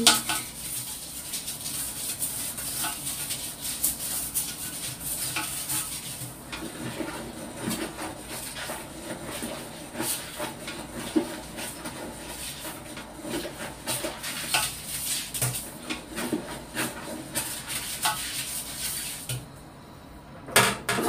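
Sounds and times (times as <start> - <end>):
toilet brush scrubbing bowl: 0.0 - 19.4.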